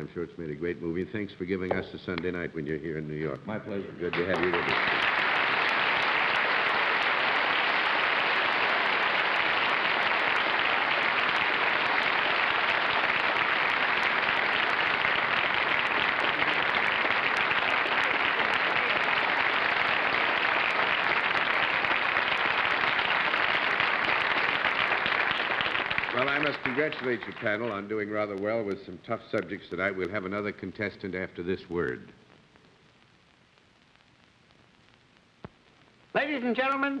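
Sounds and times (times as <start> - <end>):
audience applauding: 4.0 - 28.7.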